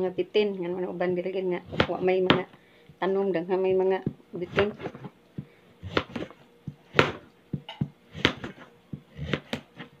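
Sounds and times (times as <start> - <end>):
knife slicing on cutting board: 5.8 - 7.3, 8.1 - 10.0.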